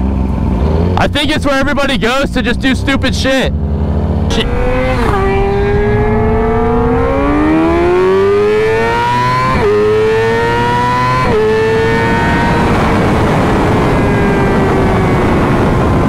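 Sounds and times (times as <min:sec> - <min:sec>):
motorcycle engine accelerating: 0:00.0 - 0:16.0
rushing wind noise: 0:02.8 - 0:16.0.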